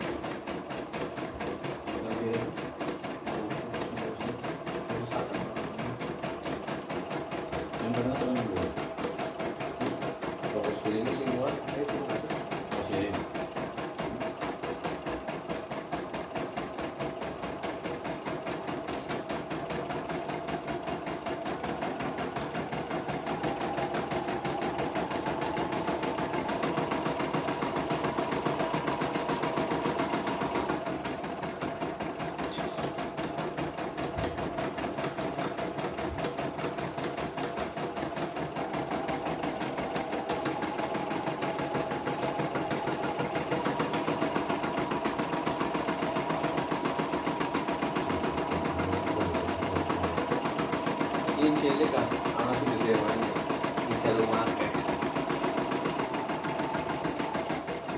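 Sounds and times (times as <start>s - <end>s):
embroidery machine stitching: 0.0s - 57.9s.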